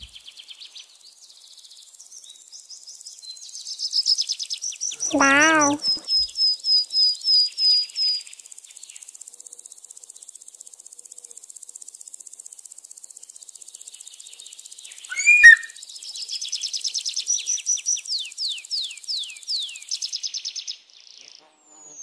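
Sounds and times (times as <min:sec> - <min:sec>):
small birds chirping: 0:05.0 - 0:06.0, 0:13.8 - 0:16.4
sharp bird call with click: 0:15.1 - 0:15.7.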